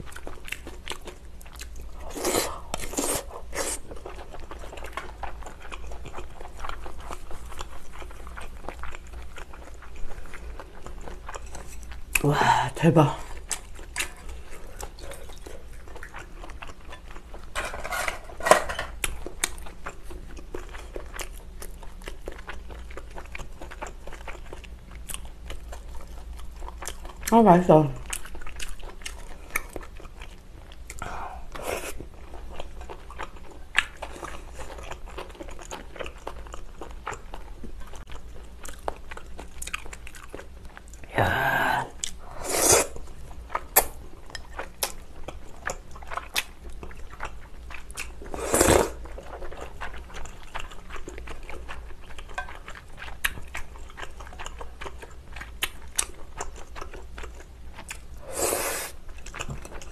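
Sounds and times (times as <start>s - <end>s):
close chewing with wet clicks: 0.0s - 12.3s, 13.2s - 17.6s, 19.0s - 31.0s, 32.0s - 41.1s, 43.0s - 48.3s, 48.9s - 58.2s, 59.0s - 59.9s
loud slurps: 42.3s - 43.0s, 48.3s - 49.0s, 58.2s - 59.0s.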